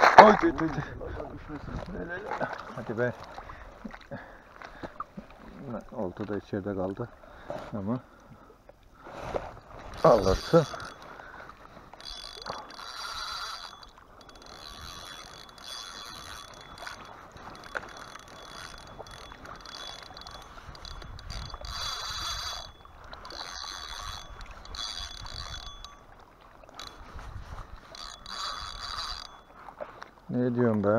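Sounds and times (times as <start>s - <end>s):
fishing reel cranking: 9.7s - 29.8s.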